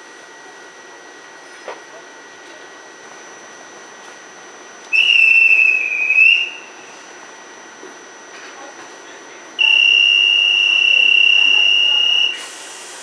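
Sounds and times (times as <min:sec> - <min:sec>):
shrill whistle blast: 0:04.9 - 0:06.6, 0:09.6 - 0:12.4.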